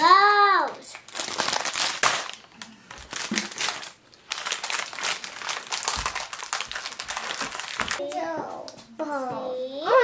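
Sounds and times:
plastic bag crinkling: 0.8s - 8.0s.

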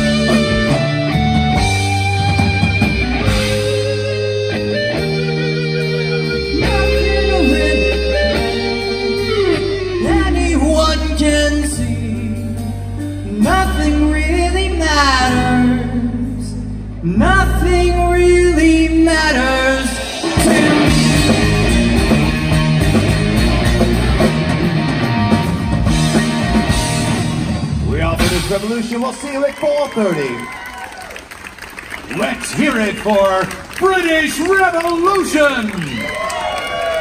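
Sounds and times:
bass guitar held notes: 0.0s - 28.7s
live rock band playing: 0.0s - 35.1s
person singing: 6.3s - 21.7s.

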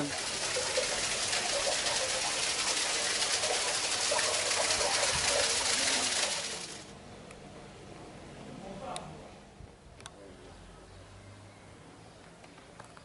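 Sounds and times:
fountain water splashing: 0.0s - 6.9s.

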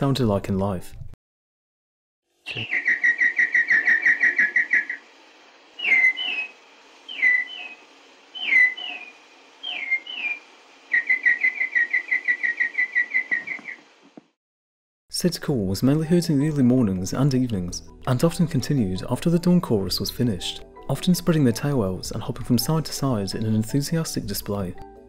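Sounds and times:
person whistling bird calls: 2.5s - 4.9s, 5.8s - 6.5s.

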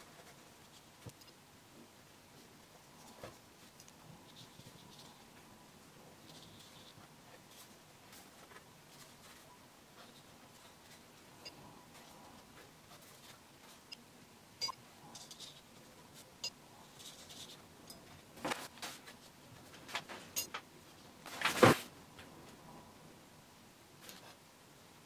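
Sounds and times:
paintbrush scratching on paper: 6.2s - 11.1s.

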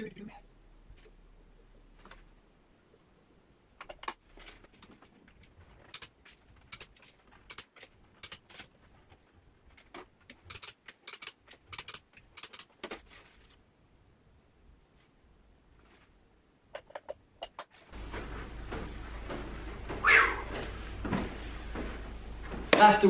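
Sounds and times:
torque wrench clicking: 10.5s - 12.7s.

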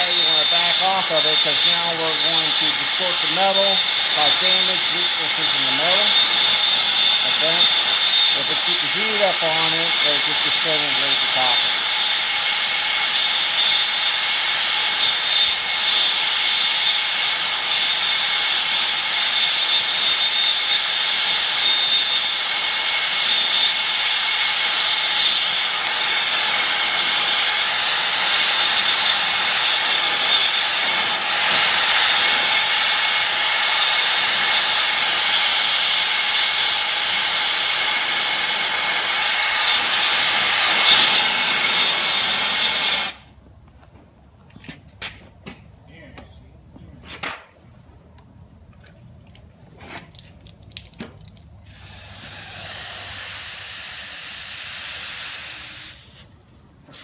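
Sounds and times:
torch flame hissing: 0.0s - 12.0s, 24.6s - 43.2s, 51.7s - 56.3s.

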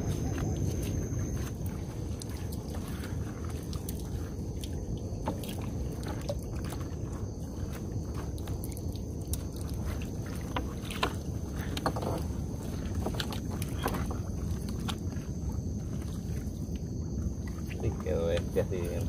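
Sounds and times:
steady low rumble: 0.0s - 19.0s
water dripping: 0.0s - 19.0s.

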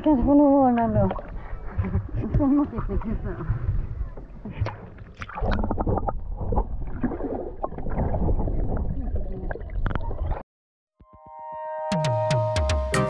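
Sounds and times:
water splashing and gurgling: 0.0s - 10.4s
music with plucked notes: 11.0s - 13.0s.

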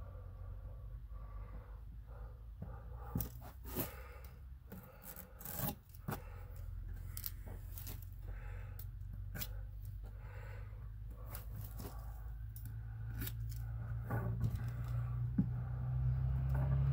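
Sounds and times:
low steady hum: 0.0s - 16.9s.

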